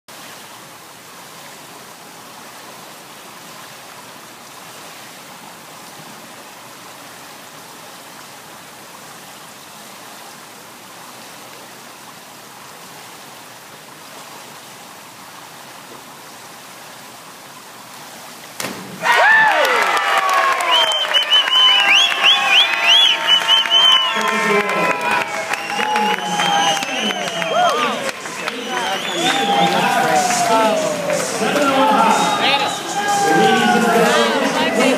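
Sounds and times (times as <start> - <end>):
indoor pool background hiss: 0.1 - 34.9
diver splash: 18.5 - 34.2
crowd cheering and whistling: 19.0 - 34.9.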